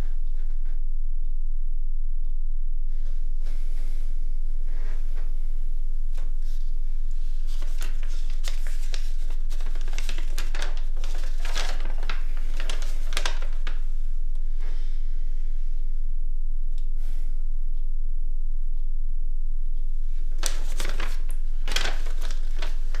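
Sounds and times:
steady low hum: 0.0s - 23.0s
paper rustling and crinkling: 7.2s - 13.8s, 20.3s - 23.0s.

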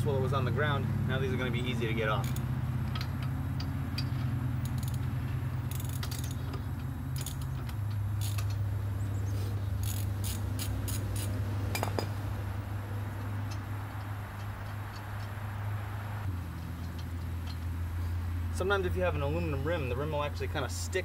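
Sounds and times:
lug nuts being unscrewed: 2.0s - 12.4s, 13.0s - 18.5s.

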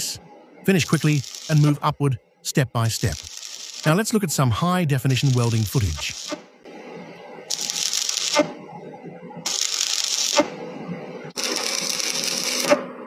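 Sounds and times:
welding arc sizzling: 0.7s - 1.9s, 2.9s - 4.3s, 5.0s - 6.5s, 7.5s - 8.5s, 9.5s - 10.6s, 11.3s - 12.8s
welding arc snap: 0.8s - 1.8s, 3.1s - 4.0s, 5.0s - 6.4s, 7.5s - 8.5s, 9.5s - 10.6s, 11.3s - 12.8s.

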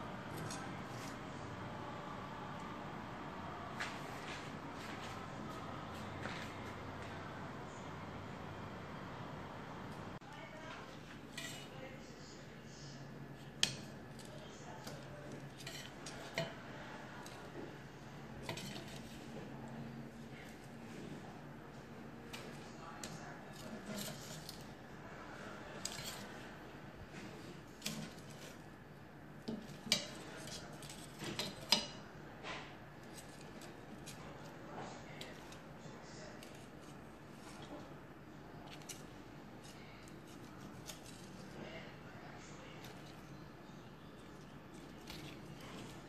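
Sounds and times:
metal tongs clinking on metal tray: 13.5s - 16.6s, 18.4s - 19.1s, 29.5s - 32.0s.

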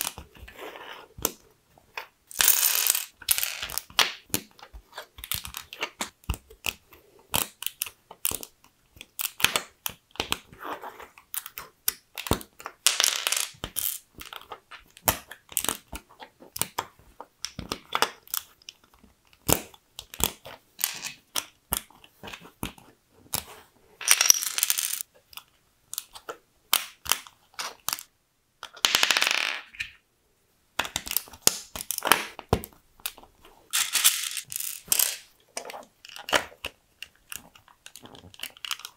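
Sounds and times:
plastic bricks clicking together: 24.0s - 29.9s.

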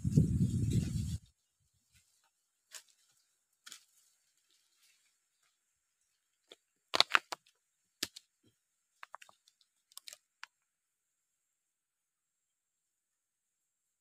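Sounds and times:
dry fronds crackling underfoot: 0.6s - 7.3s.

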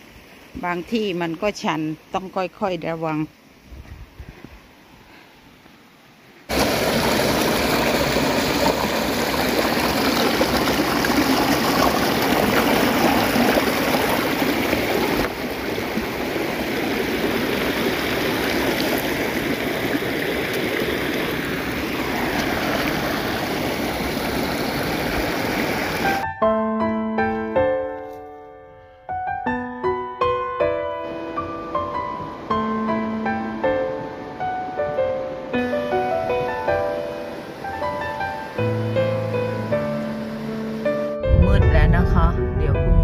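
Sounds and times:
stream water rushing: 0.0s - 3.7s, 4.6s - 26.2s, 33.4s - 41.2s.

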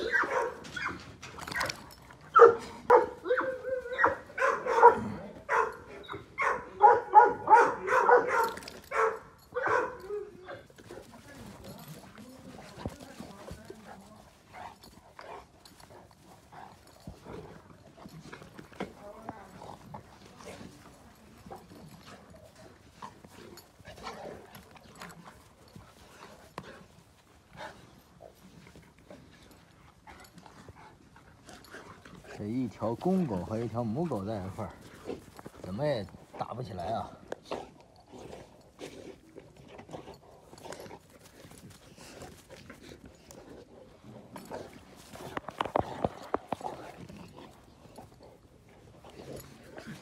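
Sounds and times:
dogs barking and yipping: 0.0s - 18.3s
dogs scuffling: 0.0s - 37.8s, 38.6s - 50.0s.

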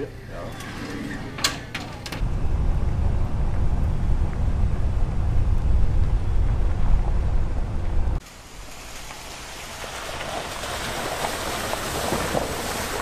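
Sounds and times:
vehicle driving on dirt road: 2.2s - 8.2s, 8.8s - 13.0s.

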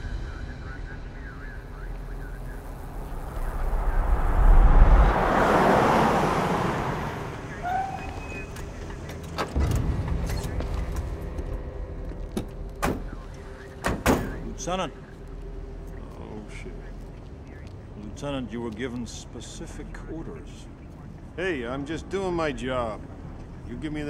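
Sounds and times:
car engine and tyre noise: 1.1s - 19.0s.

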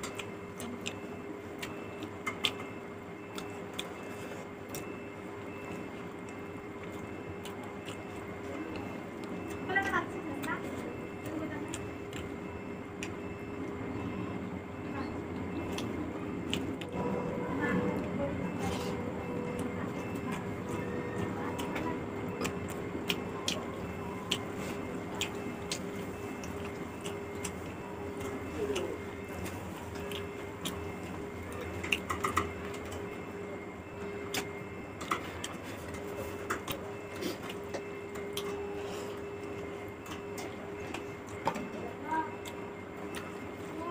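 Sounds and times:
faint hum: 0.0s - 43.9s
chewing mouth sounds: 3.3s - 9.7s, 18.0s - 33.0s.

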